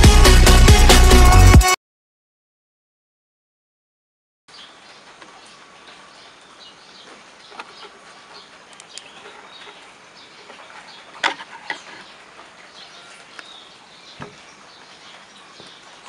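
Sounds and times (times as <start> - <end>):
rain on foliage and roof tiles: 4.5 - 16.0.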